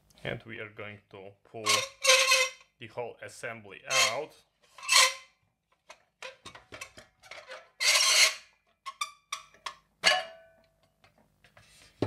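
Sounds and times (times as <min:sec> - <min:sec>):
metal scraping: 0:01.6 - 0:02.6, 0:03.9 - 0:05.3, 0:06.3 - 0:09.0.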